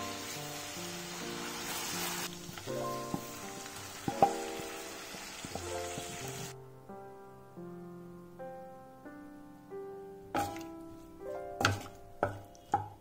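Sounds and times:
sauce sizzling in a frying pan: 0.0 - 6.6
background music: 0.0 - 13.0.

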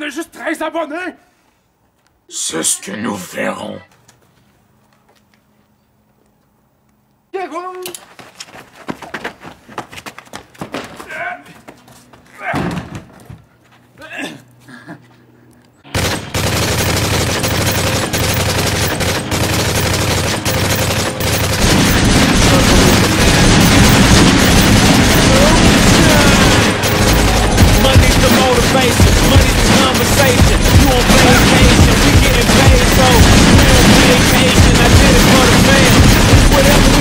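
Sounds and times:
rapid automatic gunfire: 15.9 - 37.0.

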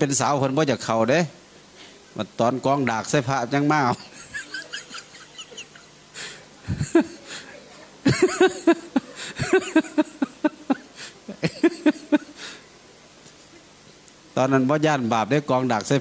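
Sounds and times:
laughter: 3.9 - 6.0, 6.6 - 12.5.

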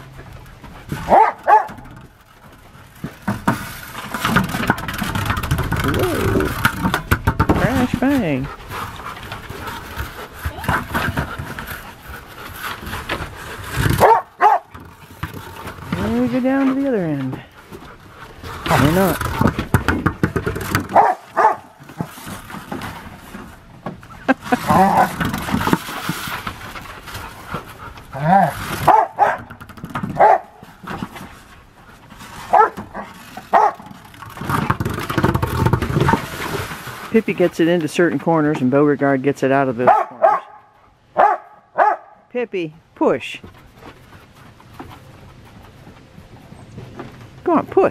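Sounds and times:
ball and paws knocking on wooden boards: 0.0 - 38.7, 43.3 - 47.9
dog yelping: 1.1 - 1.8, 14.0 - 14.7, 21.0 - 21.7, 28.2 - 29.4, 32.5 - 33.8, 41.2 - 42.2.

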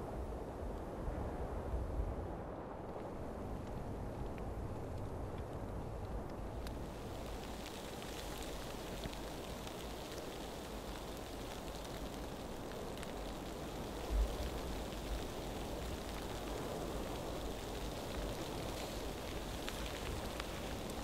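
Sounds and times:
snow falling on tent fabric: 2.8 - 21.0.

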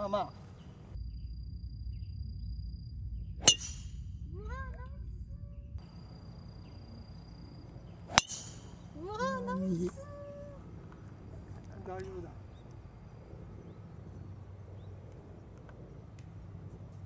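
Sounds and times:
golf club striking ball: 3.4 - 4.0, 8.1 - 9.0.

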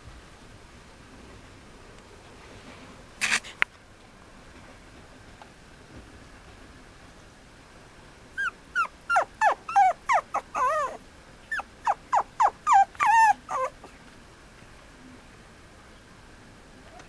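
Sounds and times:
puppy whining and yelping: 8.4 - 13.9.

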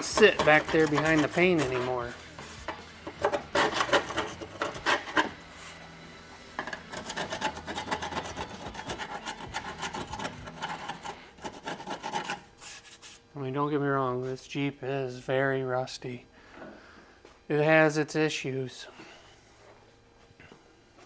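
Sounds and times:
scraping rusty steel: 0.0 - 5.4, 6.7 - 12.5.

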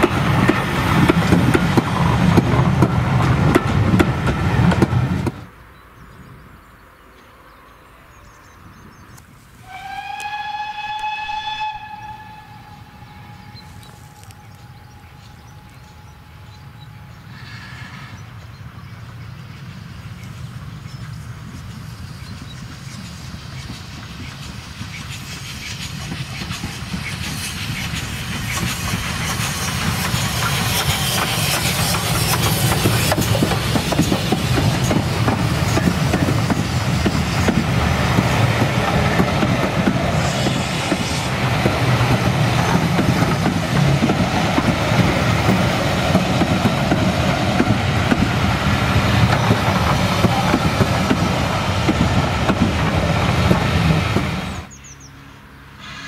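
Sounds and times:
wheels clattering on rails: 0.0 - 5.5, 20.2 - 54.8
steam locomotive passing: 0.0 - 56.0.

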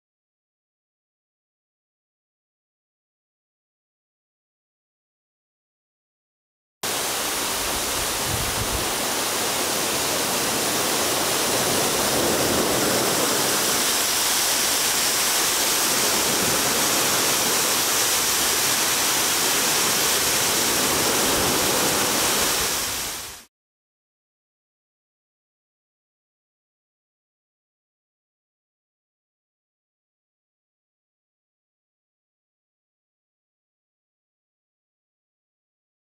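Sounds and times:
waterfall rushing: 6.8 - 23.5.

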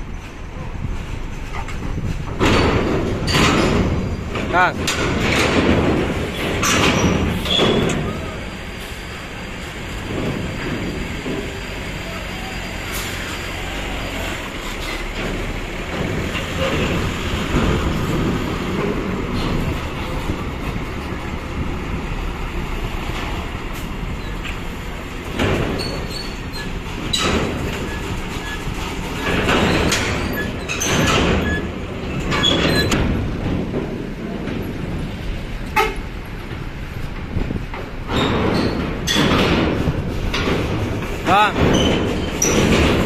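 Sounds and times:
heavy bus engine rumble: 0.0 - 43.0
loud clanks and rattles: 0.2 - 43.0.

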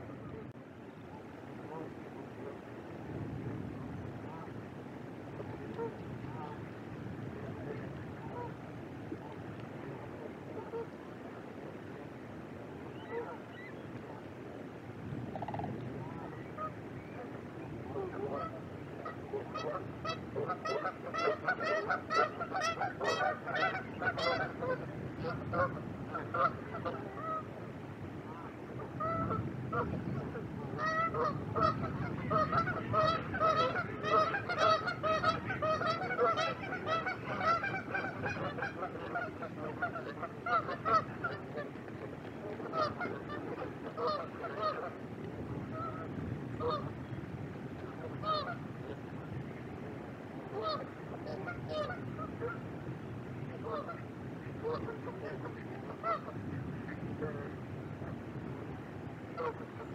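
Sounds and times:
flock of waterfowl honking: 1.6 - 2.6, 5.3 - 6.8, 7.4 - 8.6, 9.2 - 11.0, 12.8 - 14.2, 15.3 - 27.6, 28.3 - 47.0, 47.7 - 49.2, 50.4 - 52.7, 53.5 - 58.2, 59.3 - 59.9.

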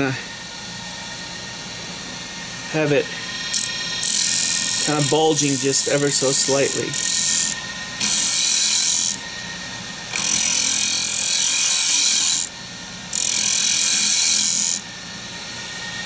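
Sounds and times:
lathe humming: 0.0 - 16.0
cutter scraping wood on lathe: 2.9 - 9.2, 10.1 - 12.5, 13.1 - 14.8.

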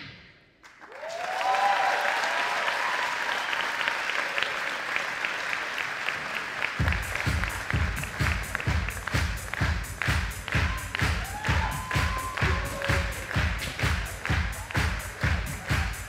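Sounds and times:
audience applauding: 0.6 - 16.0
people cheering: 0.7 - 16.0
music with steady beat: 6.8 - 16.0.

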